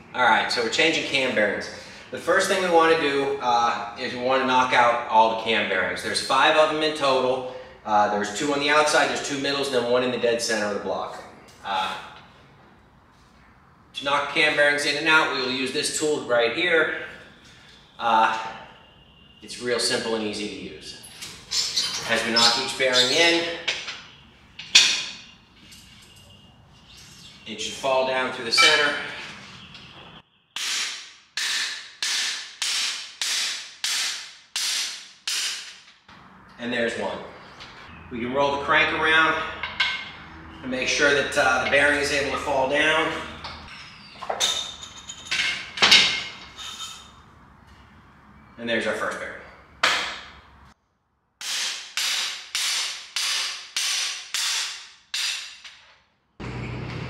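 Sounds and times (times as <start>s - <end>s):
sharp metallic blows ringing: 28.5s - 29.2s, 30.6s - 35.7s
hammer striking steel bar: 28.6s - 29.0s, 30.6s - 35.8s, 51.4s - 55.8s.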